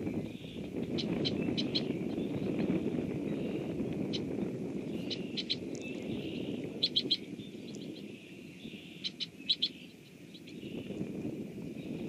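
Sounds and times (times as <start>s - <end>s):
small bird chipping calls: 0.0s - 11.1s
rain on wetland: 3.0s - 11.5s.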